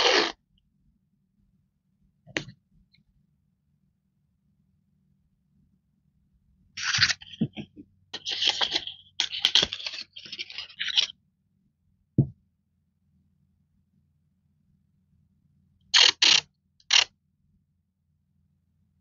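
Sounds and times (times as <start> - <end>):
knock on desk: 12.2 - 12.4.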